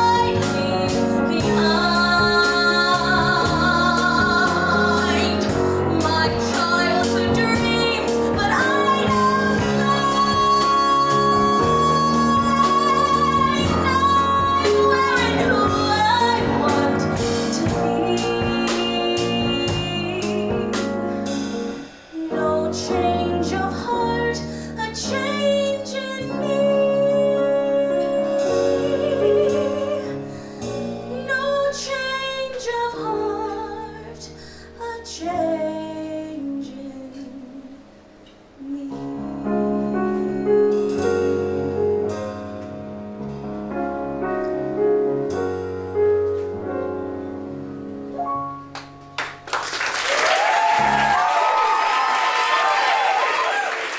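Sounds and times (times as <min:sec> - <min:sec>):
woman singing a ballad: 0:00.0 - 0:21.1, 0:22.1 - 0:38.0, 0:38.6 - 0:41.9
small band accompaniment: 0:00.0 - 0:33.8, 0:39.8 - 0:53.9.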